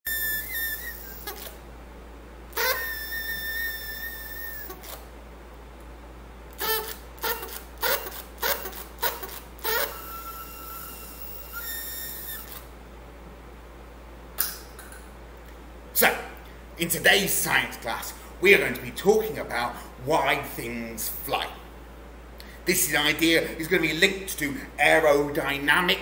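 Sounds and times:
paper party blower tooting: 0:00.1 - 0:01.6, 0:02.5 - 0:05.1, 0:06.6 - 0:12.7.

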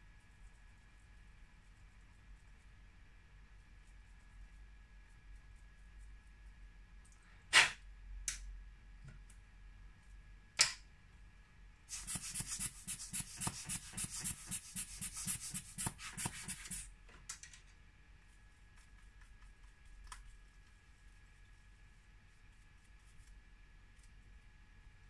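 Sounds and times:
rubbing on phone screen: 0:11.9 - 0:16.9.

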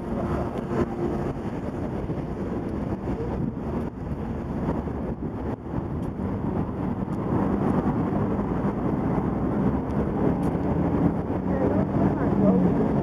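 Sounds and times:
city traffic rumble: 0:00.0 - 0:13.0
wind on microphone: 0:00.0 - 0:13.0.

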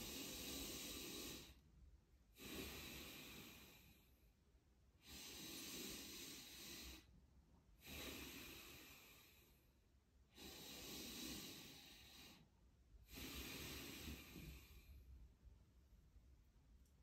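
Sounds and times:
person breathing slowly: 0:00.0 - 0:01.7, 0:02.3 - 0:04.4, 0:05.0 - 0:07.2, 0:07.8 - 0:15.3.

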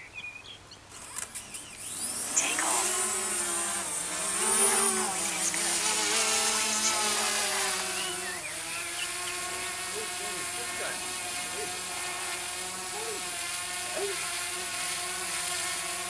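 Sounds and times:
short clicks: 0:00.9 - 0:01.6
drone propellers buzzing: 0:00.9 - 0:16.0.

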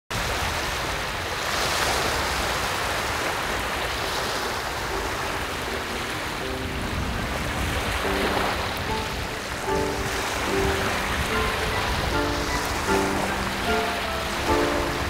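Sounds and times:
small waves washing onto shore: 0:00.1 - 0:15.0
soft held musical notes: 0:04.9 - 0:15.0.

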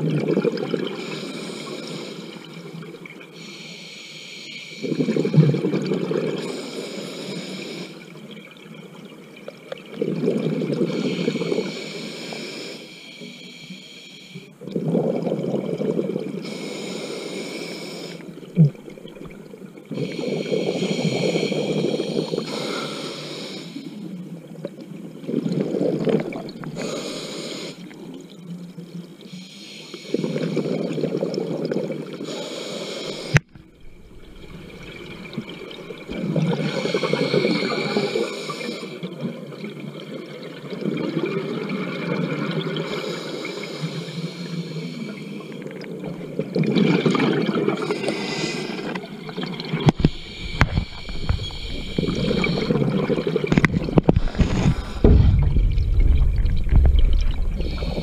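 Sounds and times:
scuba regulator breathing: 0:06.4 - 0:08.1, 0:10.9 - 0:14.6, 0:16.4 - 0:18.3, 0:19.9 - 0:24.0, 0:26.6 - 0:28.0, 0:32.2 - 0:39.0, 0:47.8 - 0:49.0, 0:49.8 - 0:58.0
bubbling exhale: 0:46.2 - 0:58.0.

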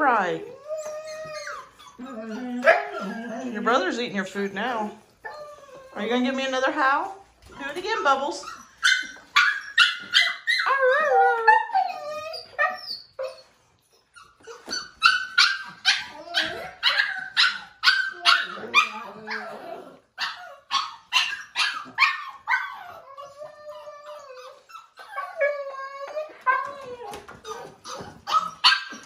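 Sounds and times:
puppy yapping: 0:08.5 - 0:13.4, 0:14.2 - 0:29.0
puppy howling: 0:09.0 - 0:13.3, 0:14.6 - 0:29.0.

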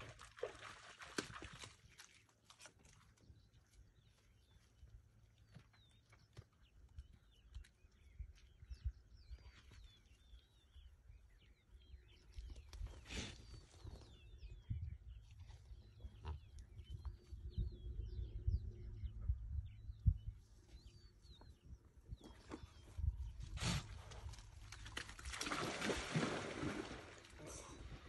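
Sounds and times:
small birds chirping: 0:01.8 - 0:26.8
wind rumble on microphone: 0:07.0 - 0:25.0.

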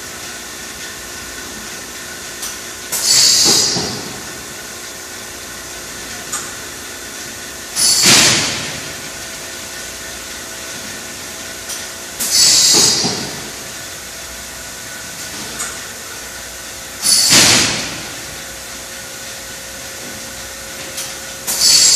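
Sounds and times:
steady machine hum: 0:00.0 - 0:21.9
machine clack: 0:02.4 - 0:04.3, 0:17.0 - 0:18.1, 0:20.9 - 0:21.9.

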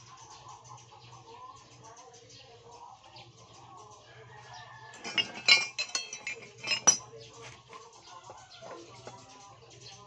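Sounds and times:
metal hand tools clinking: 0:05.0 - 0:07.1.

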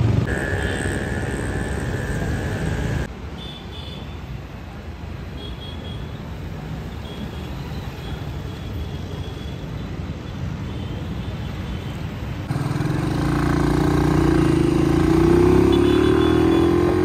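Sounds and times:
motorcycle engine running: 0:00.0 - 0:03.1, 0:12.5 - 0:17.0
road traffic noise: 0:00.0 - 0:17.0.

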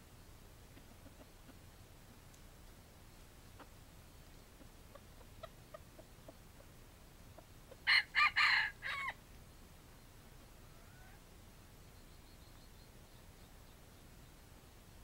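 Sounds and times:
soft clucks: 0:00.7 - 0:02.4, 0:03.4 - 0:07.8
rooster crowing: 0:07.8 - 0:09.2.

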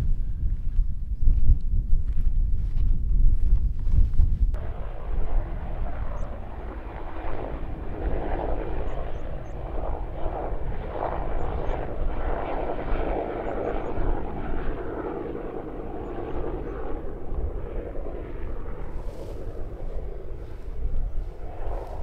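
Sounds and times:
wind on microphone: 0:00.0 - 0:22.0
distant engine-like drone: 0:04.5 - 0:22.0.

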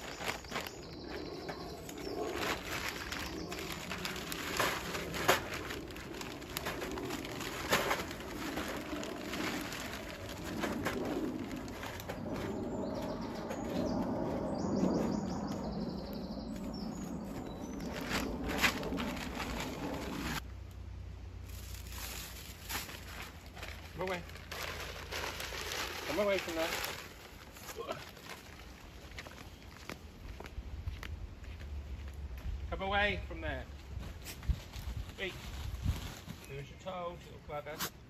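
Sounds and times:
small birds chirping: 0:00.0 - 0:04.6, 0:11.3 - 0:20.1
bag rustling: 0:00.0 - 0:14.0, 0:17.4 - 0:20.4.

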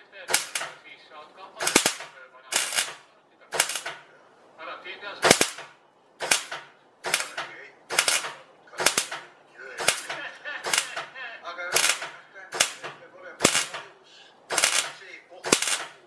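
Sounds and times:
arc welder crackling: 0:00.3 - 0:00.8, 0:01.6 - 0:04.1, 0:05.2 - 0:11.1, 0:11.7 - 0:13.9, 0:14.5 - 0:16.0.

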